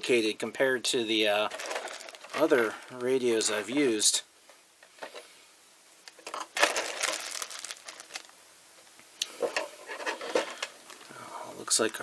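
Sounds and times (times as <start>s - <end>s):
plastic crinkling: 1.3s - 3.8s, 6.1s - 8.4s.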